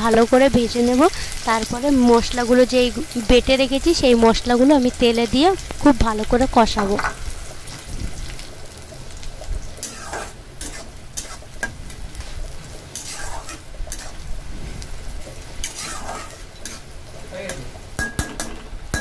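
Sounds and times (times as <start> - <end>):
onions sizzling in oil: 0.0 - 19.0
metal spatula scraping a pan: 9.7 - 17.6.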